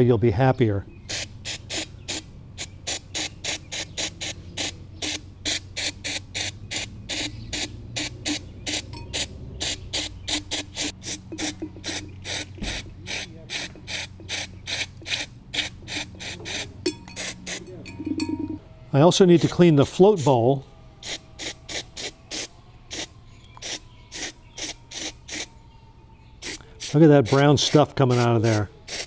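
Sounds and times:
aerosol spray hisses: 10.0s - 16.7s.

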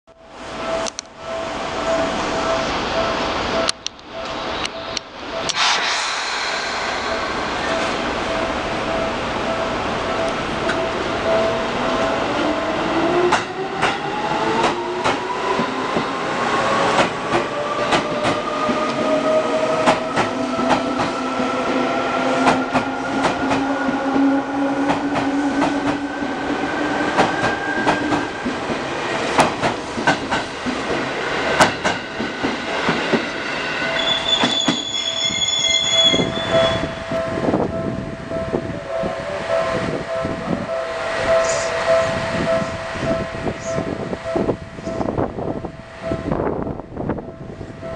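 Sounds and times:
standing train hum: 0.2s - 47.9s
brief high tone: 38.6s - 45.1s.

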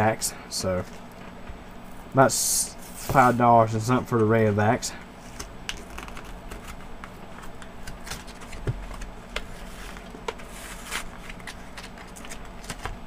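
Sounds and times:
packaging crinkling: 5.3s - 6.8s, 7.4s - 13.0s.

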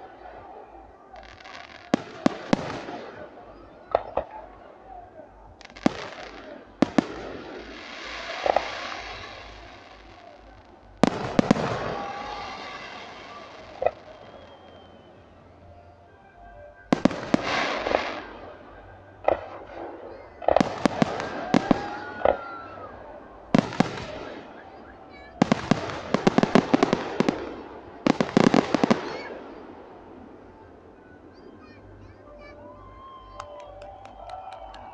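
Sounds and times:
fireworks bursting and crackling: 0.0s - 15.2s, 16.9s - 30.6s
firework crackling hiss: 5.6s - 10.2s.

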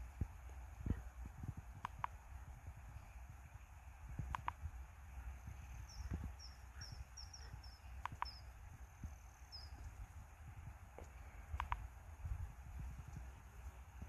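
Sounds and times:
quick clicks: 1.8s - 2.2s, 4.2s - 4.6s, 8.0s - 8.4s, 11.0s - 11.9s
small bird chirping: 5.4s - 10.1s.

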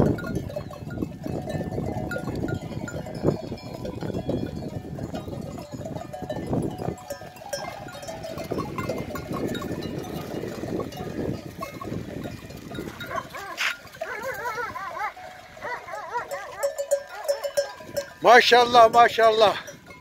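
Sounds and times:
bells clinking: 0.0s - 20.0s
hooves shuffling and trampling: 0.0s - 20.0s.

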